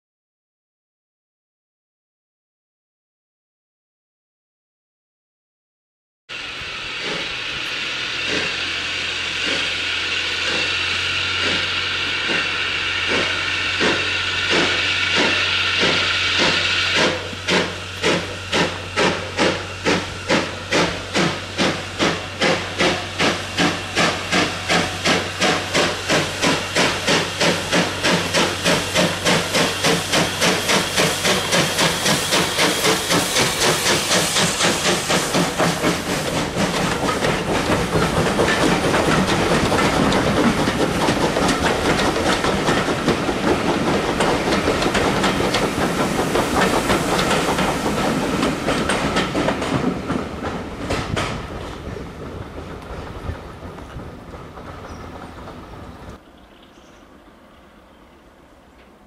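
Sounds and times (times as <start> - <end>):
steam locomotive exhaust beats: 6.3 - 56.3
steam hissing from drain cocks: 6.4 - 49.2.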